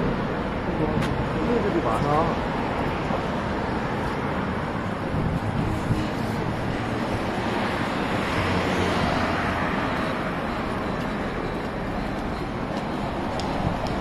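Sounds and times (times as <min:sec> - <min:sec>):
passing road traffic: 0:00.0 - 0:14.0
wind rumbling on microphone: 0:02.6 - 0:08.6, 0:12.5 - 0:14.0.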